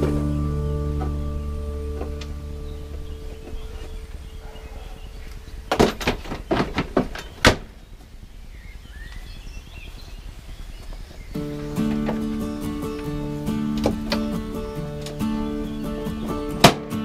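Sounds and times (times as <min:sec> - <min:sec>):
knocks and clatters: 0:05.7 - 0:07.6.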